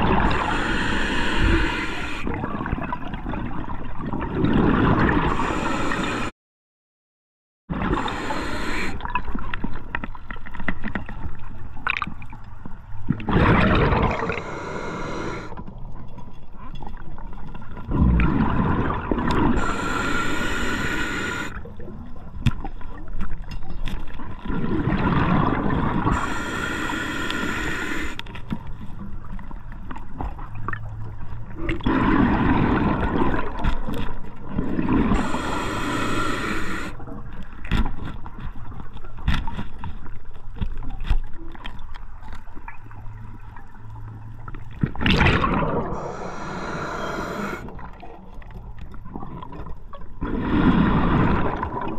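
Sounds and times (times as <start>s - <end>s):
exhaled air bubbling: 0.0s - 6.3s, 7.7s - 10.0s, 13.1s - 15.6s, 17.8s - 22.2s, 24.4s - 28.2s, 31.4s - 37.4s, 44.7s - 51.9s
regulator inhale hiss: 0.3s - 2.3s, 5.3s - 6.3s, 7.9s - 9.0s, 14.2s - 15.6s, 19.6s - 21.6s, 26.1s - 28.2s, 35.1s - 37.0s, 45.9s - 47.7s.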